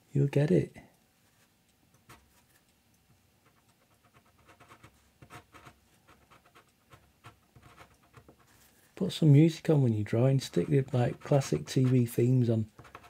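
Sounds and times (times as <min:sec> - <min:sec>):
pen scratching on paper: 0:03.4 - 0:08.6, 0:10.5 - 0:13.0.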